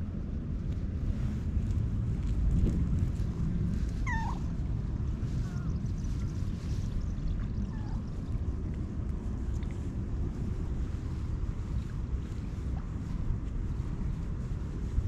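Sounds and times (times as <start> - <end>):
wind buffeting microphone: 0.0 - 15.0
cat meowing: 4.0 - 4.5.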